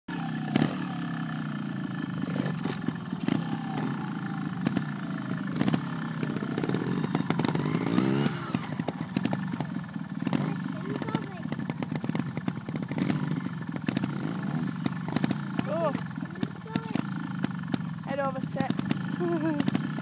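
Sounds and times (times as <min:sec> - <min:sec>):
motorcycle engine revving: 0:00.1 - 0:20.0
sharp knocks and clatter: 0:02.3 - 0:03.9, 0:07.4 - 0:17.9, 0:18.5 - 0:20.0.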